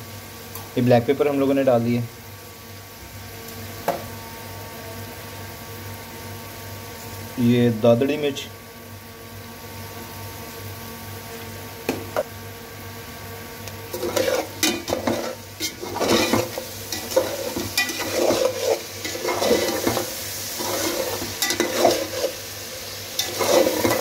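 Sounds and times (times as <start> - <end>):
food sizzling in a pan: 0.0 - 24.0
spoon scraping a pan: 13.9 - 24.0.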